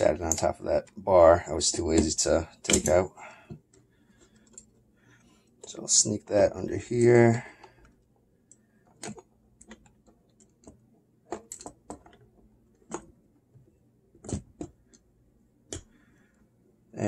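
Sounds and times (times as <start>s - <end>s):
metal and plastic parts clicking: 7.6s - 12.2s.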